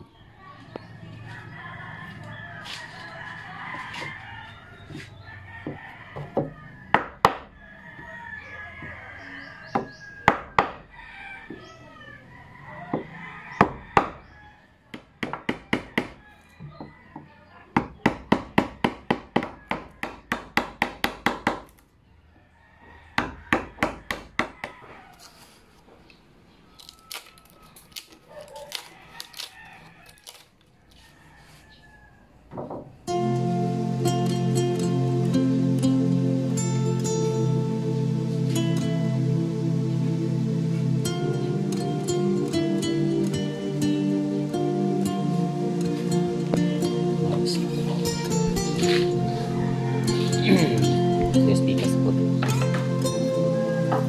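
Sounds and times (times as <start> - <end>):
chickens clucking: 0.0 - 14.8, 45.3 - 54.0
rooster crowing: 0.9 - 17.6, 19.2 - 20.3, 22.2 - 25.9, 26.7 - 32.5, 44.4 - 51.3, 52.7 - 54.0.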